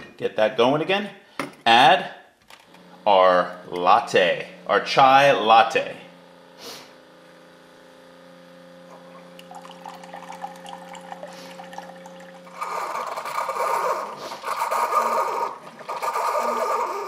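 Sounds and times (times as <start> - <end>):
pump humming: 2.7 - 17.0
liquid pouring into glass mug: 8.9 - 13.5
liquid spurts: 8.9 - 17.0.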